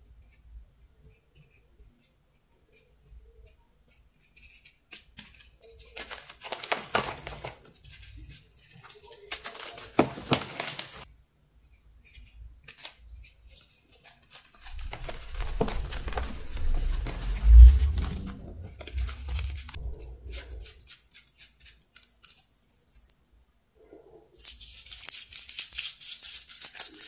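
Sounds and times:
chalk blocks crunching and crumbling: 0:12.1 - 0:23.0.

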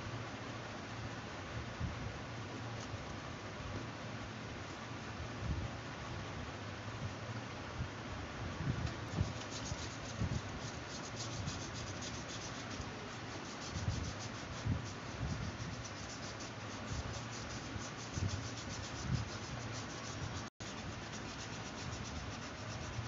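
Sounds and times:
steady hiss: 0:00.0 - 0:23.0
marker rubbing on plastic bottle: 0:09.0 - 0:23.0.

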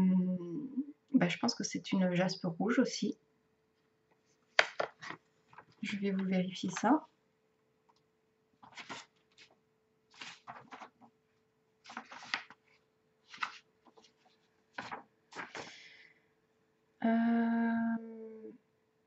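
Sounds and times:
paper pages rustling: 0:04.2 - 0:07.1, 0:08.6 - 0:11.2, 0:11.8 - 0:15.9.

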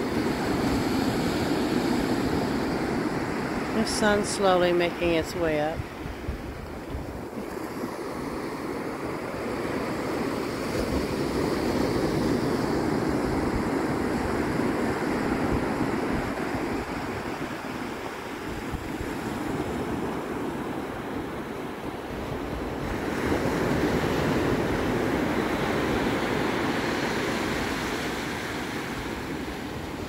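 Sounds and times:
ocean surf breaking on beach: 0:00.0 - 0:30.0.

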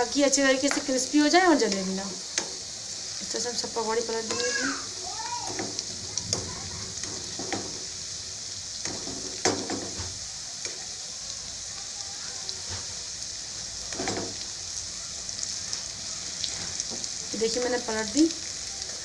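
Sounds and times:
food sizzling in hot oil: 0:00.0 - 0:19.0
spoon scraping and knocking pan: 0:07.0 - 0:07.9, 0:08.8 - 0:10.1, 0:13.9 - 0:14.4.

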